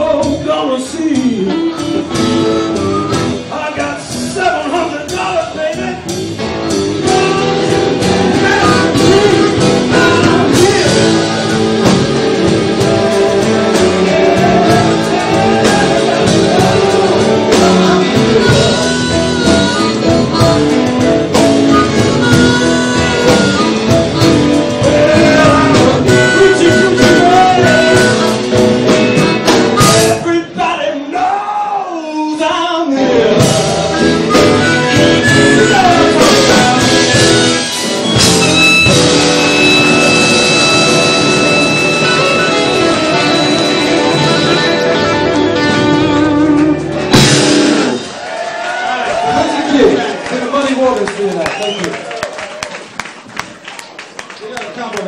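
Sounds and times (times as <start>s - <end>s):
blues band playing live: 0.0s - 54.4s
instrument playing bent notes: 1.6s - 3.5s, 6.6s - 30.2s, 33.3s - 48.0s.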